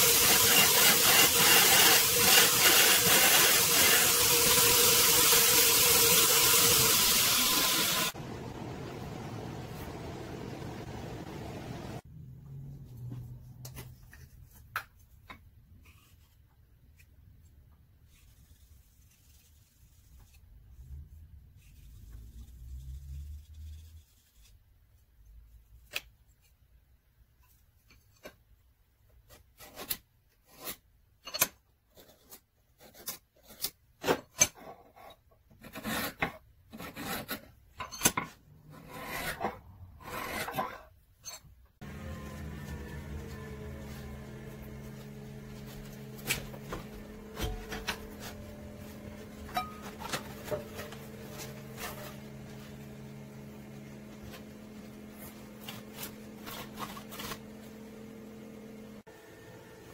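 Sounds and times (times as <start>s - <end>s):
scribing tool scratching steel: 0.1s - 4.6s.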